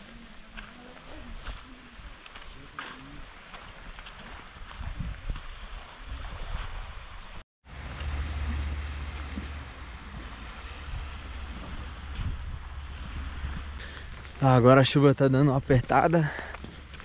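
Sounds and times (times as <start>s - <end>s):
small waves on a shore: 0.0s - 15.0s
wind rumbling on microphone: 1.2s - 14.7s.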